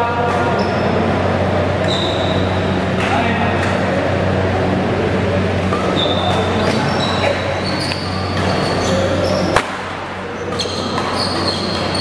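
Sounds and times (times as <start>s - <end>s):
steady low hum: 0.0s - 12.0s
shoes squeaking on court floor: 0.2s - 1.1s, 1.8s - 2.8s, 5.6s - 12.0s
rackets hitting shuttlecock: 5.6s - 12.0s.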